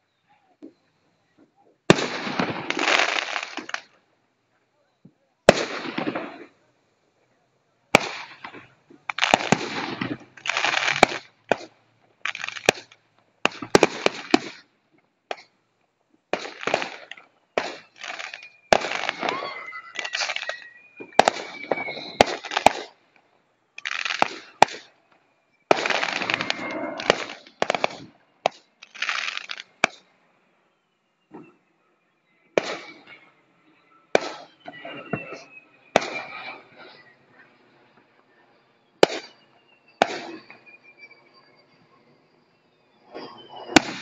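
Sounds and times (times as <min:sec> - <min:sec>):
firework whistle: 0:00.7 - 0:04.0, 0:04.9 - 0:06.5, 0:07.9 - 0:15.5, 0:16.4 - 0:23.0, 0:23.6 - 0:44.0
fireworks bangs and crackles: 0:01.7 - 0:04.0, 0:05.4 - 0:06.6, 0:07.9 - 0:14.7, 0:15.3 - 0:15.5, 0:16.3 - 0:23.0, 0:23.8 - 0:25.0, 0:25.6 - 0:30.1, 0:32.5 - 0:41.8, 0:42.8 - 0:44.0.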